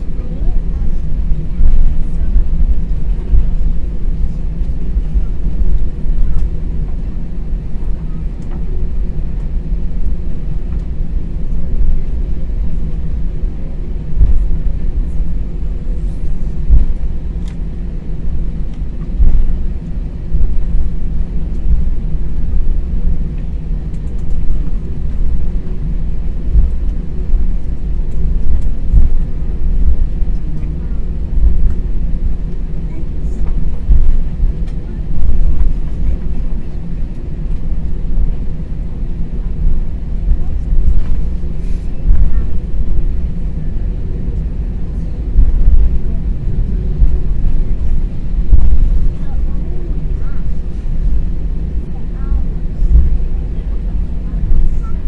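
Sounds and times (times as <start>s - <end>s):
airliner cabin rumble: 0.0s - 55.0s
low thumps: 14.1s - 14.6s, 16.6s - 17.4s, 18.4s - 22.8s, 24.0s - 32.5s, 33.4s - 36.2s, 45.2s - 49.4s, 52.8s - 53.2s.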